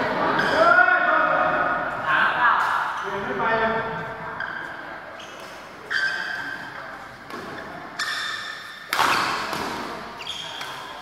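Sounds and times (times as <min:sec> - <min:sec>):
racket hitting shuttlecock: 0:07.3 - 0:11.0.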